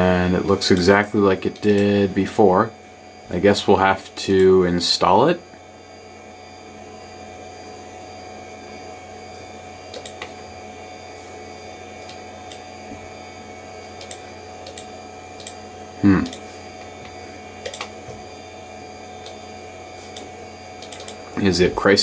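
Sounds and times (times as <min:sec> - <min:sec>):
computer hum: 0:00.0 - 0:22.0
computer mouse clicking: 0:01.5 - 0:01.9, 0:09.9 - 0:10.3, 0:14.0 - 0:15.6, 0:17.6 - 0:18.0, 0:20.1 - 0:21.2.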